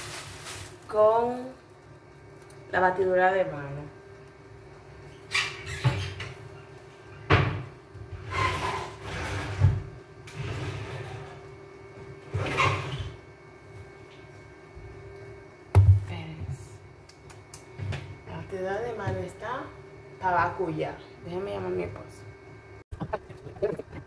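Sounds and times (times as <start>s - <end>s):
cupboard doors opening and closing: 7.3s - 11.4s.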